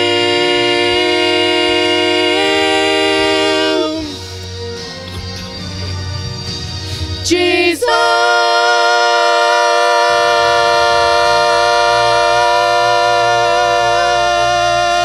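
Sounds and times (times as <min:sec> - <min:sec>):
church music with singing: 0:00.0 - 0:15.0.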